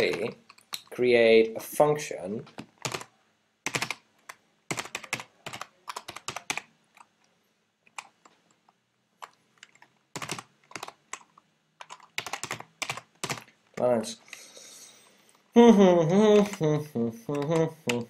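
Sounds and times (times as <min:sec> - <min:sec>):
typing on a keyboard: 0:02.8 - 0:06.7, 0:09.2 - 0:13.6, 0:16.3 - 0:16.7.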